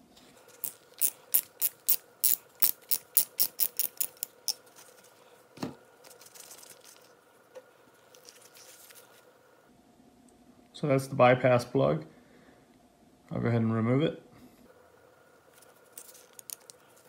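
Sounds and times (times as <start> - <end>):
ratchet wrench clicking: 0.6 - 4.6.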